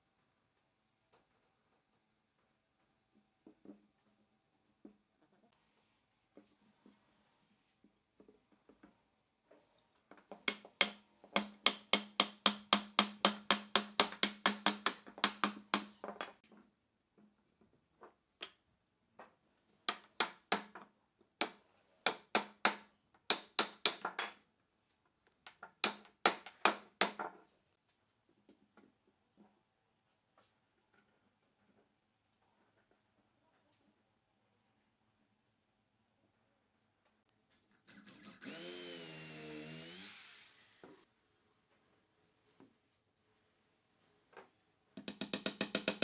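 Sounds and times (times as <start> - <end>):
hammer striking wood: 10.5 - 16.0.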